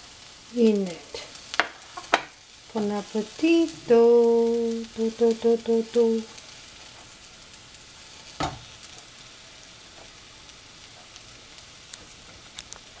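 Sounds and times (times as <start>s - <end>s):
cooking pan sizzling: 0.0s - 13.0s.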